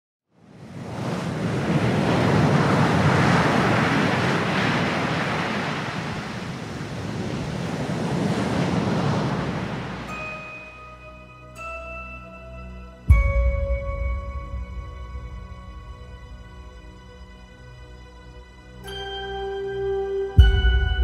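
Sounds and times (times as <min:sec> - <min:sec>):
waves breaking: 0:00.4 - 0:10.7
held music notes: 0:10.1 - 0:21.0.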